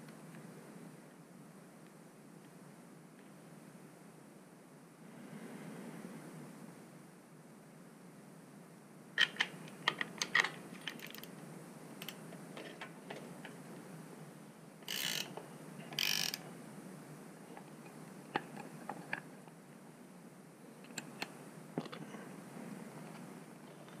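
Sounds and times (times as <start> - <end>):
ratcheting bursts: 14.8 - 16.4.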